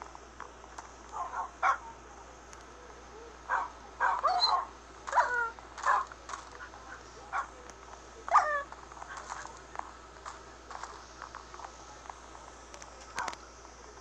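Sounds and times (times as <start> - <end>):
dog yelping and whining: 3.5 - 6.0, 8.3 - 8.7.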